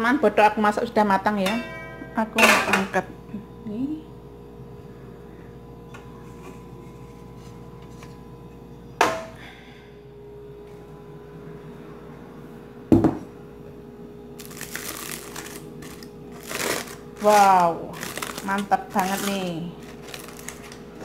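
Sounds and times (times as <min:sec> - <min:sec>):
faint steady hum: 0:00.0 - 0:21.0
metal clank with ring: 0:01.4 - 0:02.9
aluminium foil crinkling: 0:14.4 - 0:21.0.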